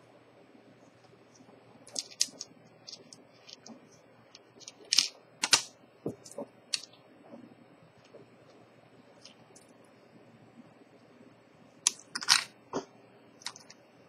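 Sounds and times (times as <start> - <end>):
small metal parts clicking: 1.9 - 3.7, 4.3 - 6.9.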